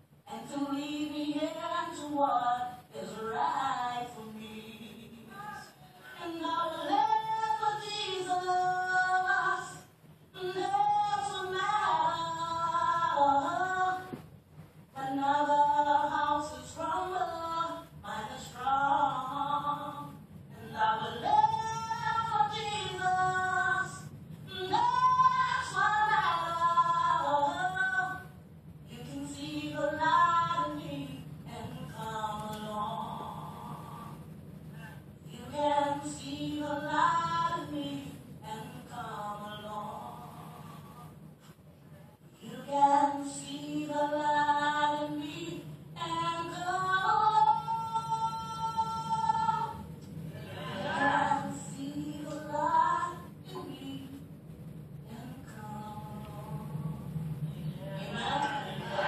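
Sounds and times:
woman singing through a television: 0.0 - 41.4, 42.1 - 54.4, 55.0 - 59.0.

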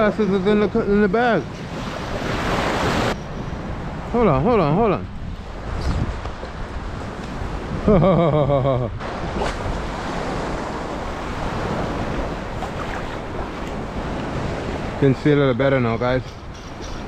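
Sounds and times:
wind on microphone: 1.6 - 15.1
water lapping at shore: 9.0 - 15.0.

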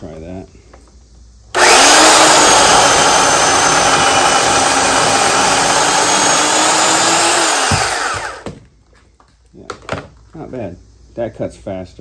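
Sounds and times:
electric chainsaw cutting log: 1.5 - 8.6.

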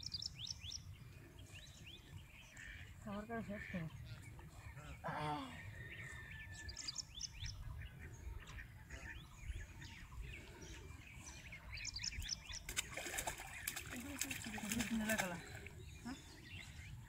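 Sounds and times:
small birds chirping: 0.0 - 17.0
fish splashing at water surface: 12.7 - 15.7.

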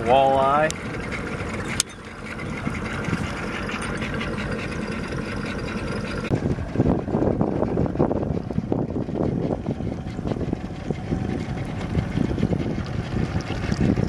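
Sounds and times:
outboard motor idling: 0.0 - 14.0.

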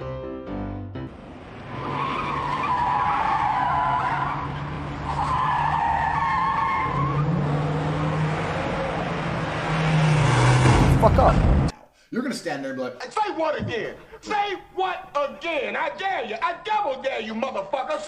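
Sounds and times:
car tyres squealing: 1.4 - 11.6.

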